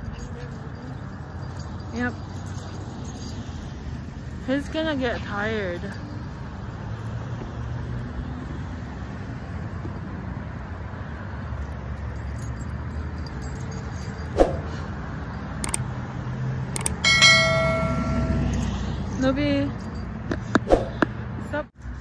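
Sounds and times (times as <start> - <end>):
distant road traffic rumble: 0.0 - 22.0
sharp click: 15.6 - 15.8
steady pitched tone: 17.0 - 18.7.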